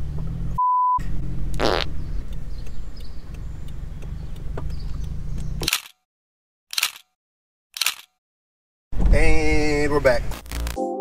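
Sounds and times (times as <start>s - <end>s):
car engine and road drone: 0.0s - 5.7s
censor bleep: 0.6s - 1.0s.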